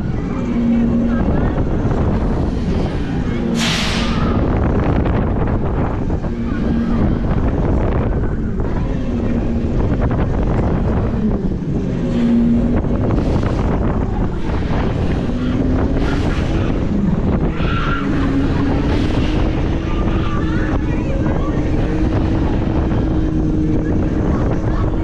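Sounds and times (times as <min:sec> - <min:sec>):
low wavering ride hum: 0:00.0 - 0:25.0
wind rushing over microphone: 0:00.0 - 0:25.0.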